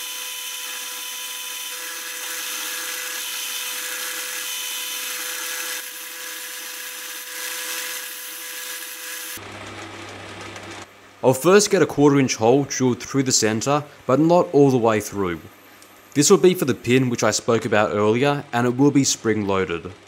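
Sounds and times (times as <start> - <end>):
metal lathe cutting: 0.0 - 9.4.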